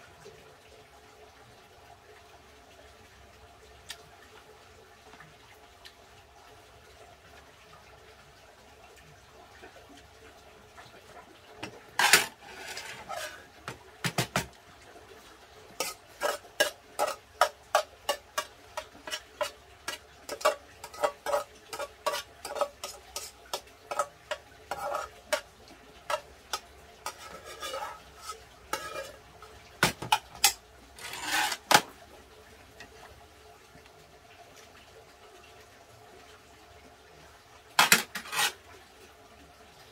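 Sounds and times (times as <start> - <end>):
spoon scraping a pot: 12.0 - 13.5, 15.8 - 31.9, 37.8 - 38.6.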